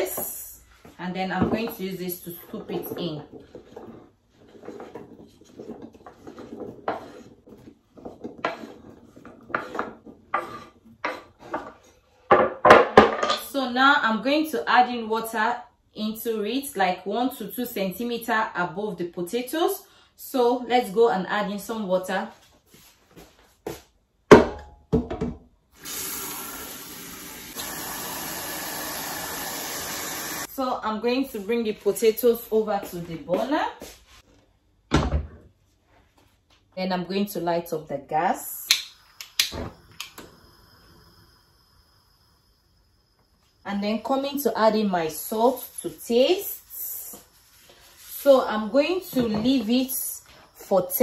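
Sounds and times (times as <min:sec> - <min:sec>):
potatoes tumbling into pot: 0:01.3 - 0:11.8
spatula scraping wooden board: 0:02.5 - 0:11.9
tap water filling pot: 0:25.8 - 0:30.5.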